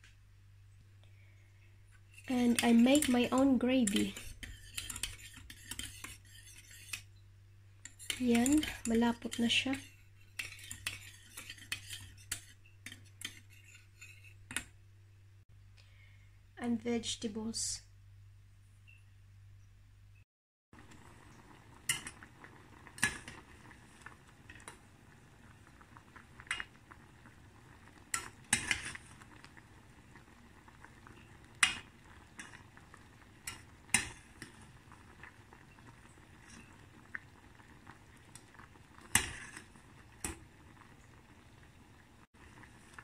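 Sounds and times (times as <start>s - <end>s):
faint bubbling: 20.8s - 43.0s.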